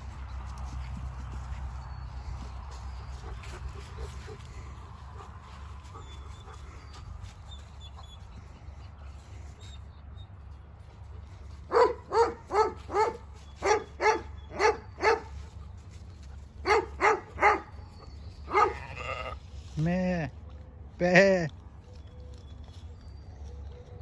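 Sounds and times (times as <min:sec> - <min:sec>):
dog barking: 0:11.7 - 0:15.4, 0:16.6 - 0:17.8, 0:18.5 - 0:18.9.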